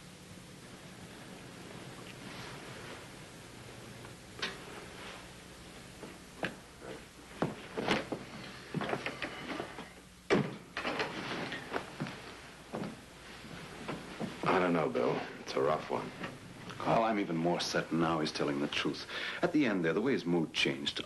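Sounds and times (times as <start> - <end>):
faint steady hum: 0.0 - 21.0
footsteps: 5.9 - 9.9, 11.1 - 17.1.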